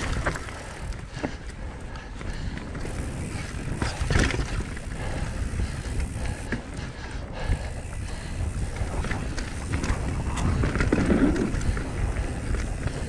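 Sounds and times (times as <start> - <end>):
bike tyres rumbling on dirt trail: 0.0 - 13.0
bike knocks and rattles: 2.8 - 4.9, 8.8 - 13.0.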